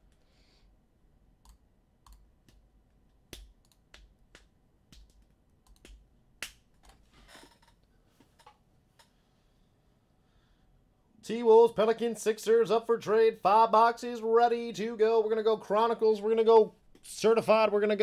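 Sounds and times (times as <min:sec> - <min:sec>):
typing on computer keyboard: 0:03.3 - 0:06.0.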